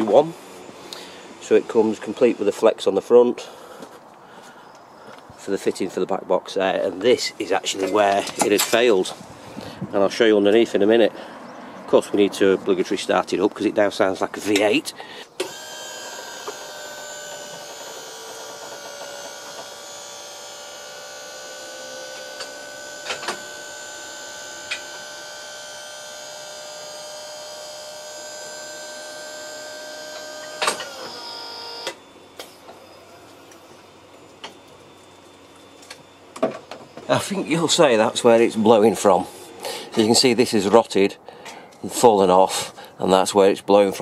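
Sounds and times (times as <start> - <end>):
hydraulic pump motor whining: 0.0 - 3.1, 15.3 - 40.0.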